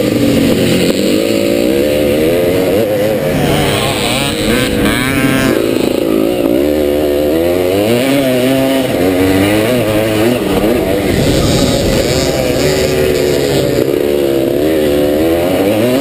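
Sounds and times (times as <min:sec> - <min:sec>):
two-stroke motorcycle engine revving: 0:00.0 - 0:16.0.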